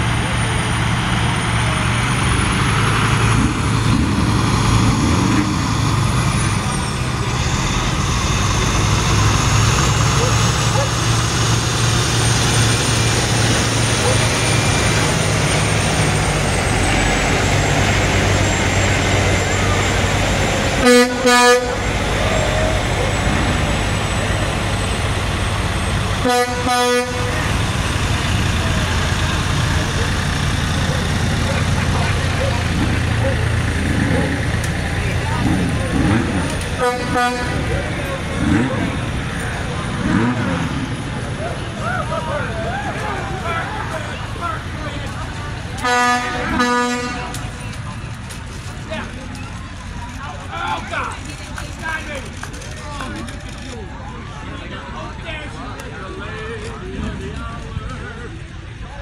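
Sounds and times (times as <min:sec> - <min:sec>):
diesel truck engine drone: 0:00.0 - 0:59.0
vehicle horn honking: 0:20.8 - 0:21.8, 0:26.2 - 0:27.5, 0:36.8 - 0:37.6, 0:45.8 - 0:47.3.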